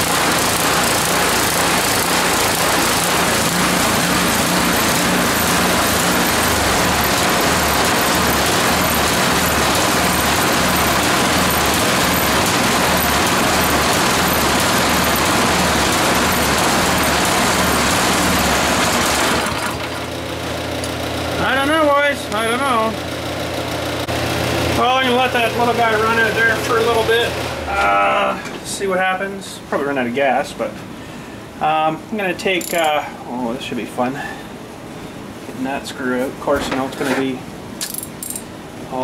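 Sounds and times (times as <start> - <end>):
small gas engine running: 0.0 - 21.6.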